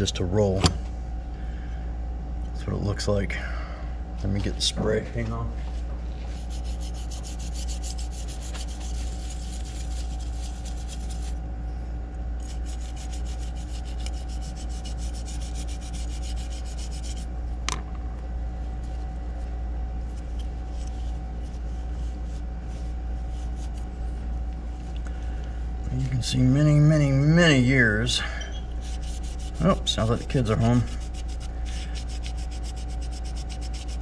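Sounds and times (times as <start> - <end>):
steady low hum: 0.0 - 34.0
brush scrubbing metal plate: 6.2 - 11.4, 12.4 - 17.3, 28.7 - 34.0.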